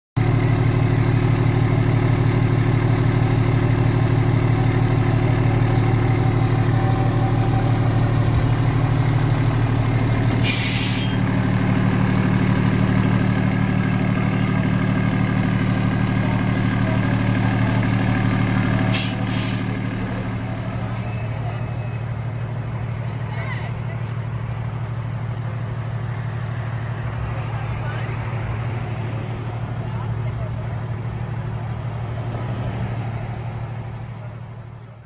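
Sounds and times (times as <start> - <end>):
diesel engine idling: 0.2 - 35.0
air brake hiss: 10.4 - 11.2, 18.9 - 19.8.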